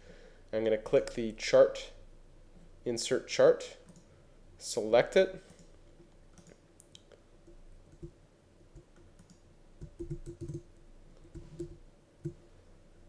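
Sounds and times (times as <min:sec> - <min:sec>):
computer keyboard and mouse clicks: 0:06.3 - 0:12.4.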